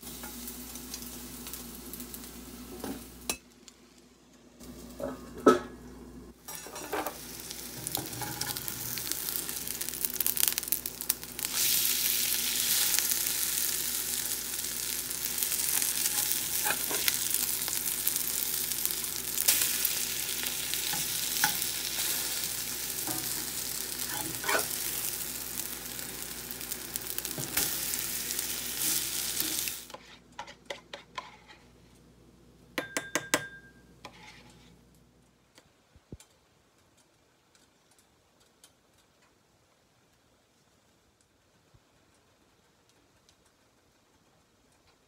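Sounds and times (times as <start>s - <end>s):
pancakes sizzling in oil: 0.0s - 5.8s, 6.4s - 31.9s
metal spatula scraping: 6.5s - 7.2s, 7.8s - 8.7s, 15.8s - 17.2s, 23.0s - 24.9s, 28.8s - 31.9s, 34.0s - 34.8s.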